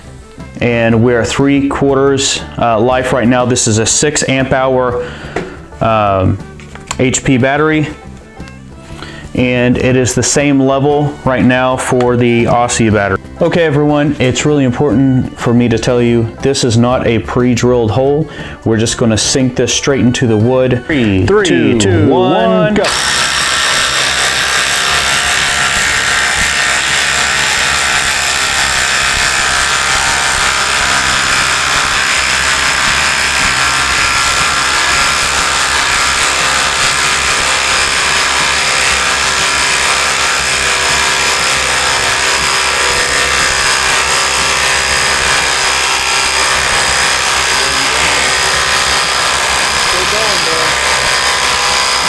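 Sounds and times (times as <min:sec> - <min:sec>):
impact driver hammering: 0:22.8 - 0:52.0.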